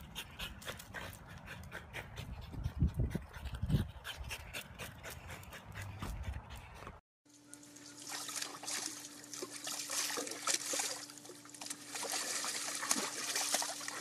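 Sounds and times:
water splashing in paddling pool: 7.8s - 14.0s.

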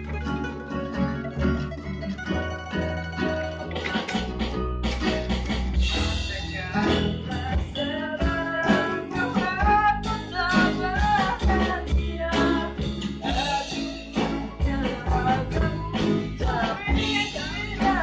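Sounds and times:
acoustic guitars strummed: 0.0s - 18.0s
electric bass line: 0.0s - 18.0s
person singing: 5.9s - 18.0s.

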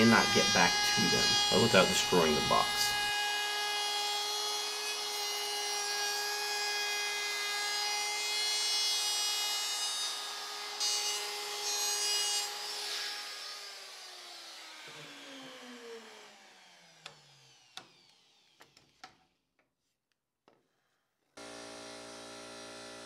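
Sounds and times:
router winding down: 0.0s - 5.0s, 12.5s - 18.9s
router whining while cutting wood: 0.0s - 19.2s, 21.4s - 23.0s.

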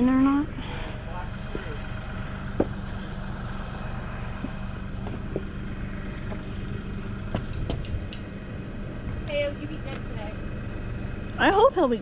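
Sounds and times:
steady low rumble: 0.0s - 12.0s
sharp knocks: 2.5s - 2.8s, 7.3s - 8.3s.

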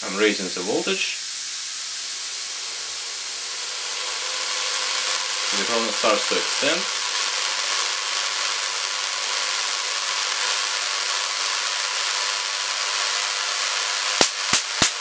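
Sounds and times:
corona discharge hissing: 0.0s - 15.0s
sharp spark cracks: 0.0s - 15.0s.

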